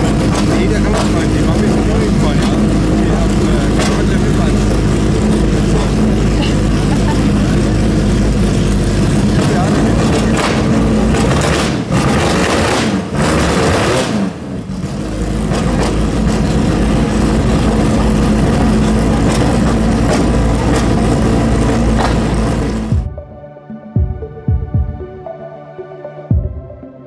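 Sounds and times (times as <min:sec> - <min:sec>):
racing car engine revving: 0:00.0 - 0:23.1
soft music: 0:22.9 - 0:27.0.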